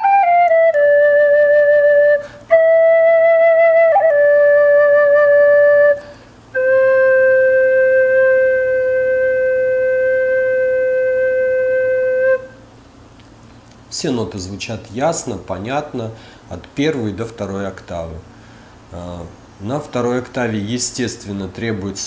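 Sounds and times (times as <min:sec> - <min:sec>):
wooden flute slow held notes: 0:00.0 - 0:12.7.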